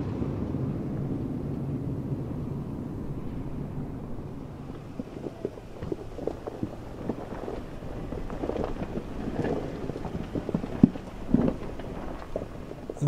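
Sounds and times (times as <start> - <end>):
low engine rumble: 0.0 - 13.0
wind on microphone: 0.0 - 13.0
tyres crunching on gravel: 3.5 - 13.0.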